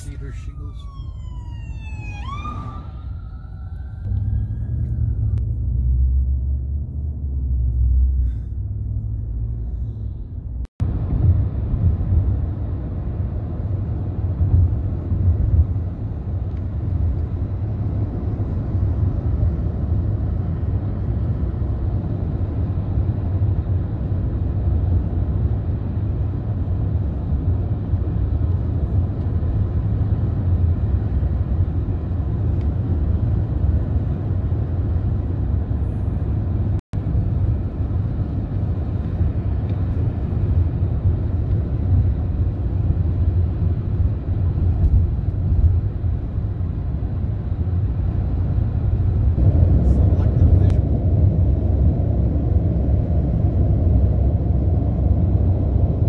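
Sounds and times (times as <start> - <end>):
car road noise: 0.0 - 56.0.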